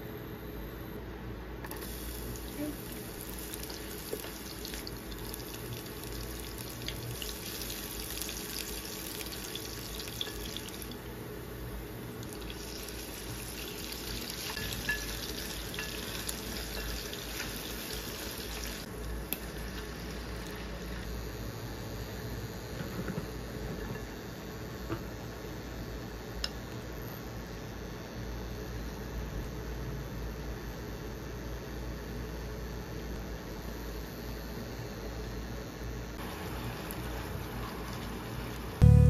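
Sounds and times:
onion sizzling in hot oil: 1.7s - 21.2s, 36.2s - 39.0s.

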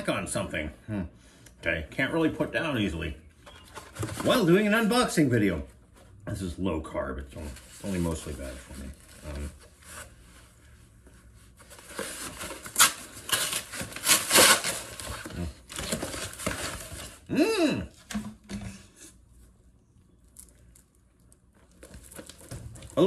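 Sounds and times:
paper mailer tearing and crumpling: 11.7s - 17.3s.

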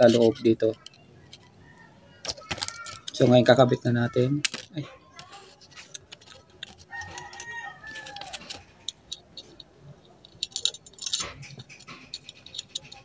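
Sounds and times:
metal parts clicking: 0.0s - 1.6s, 2.2s - 3.6s, 4.3s - 13.0s
rooster crowing: 6.9s - 8.6s.

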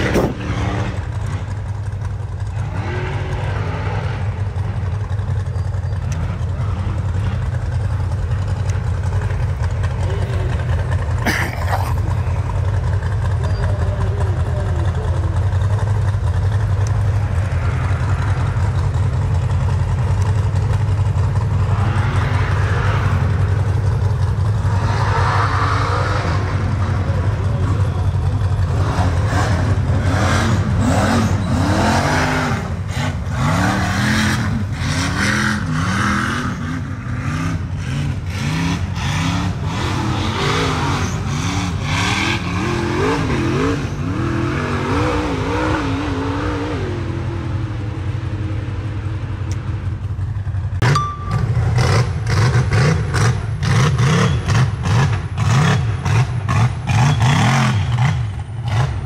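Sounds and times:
race vehicle engines revving: 0.0s - 59.0s.

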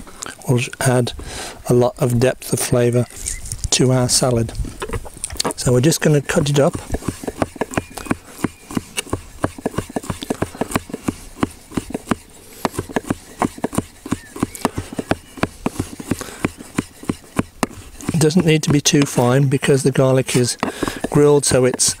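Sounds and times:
knife chopping on wooden board: 6.3s - 19.2s, 20.2s - 22.0s.

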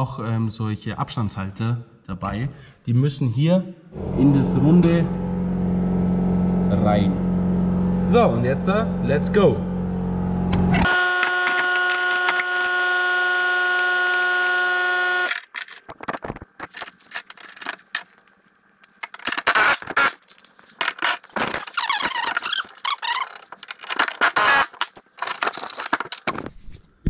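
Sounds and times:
whirring whine: 4.0s - 15.4s.

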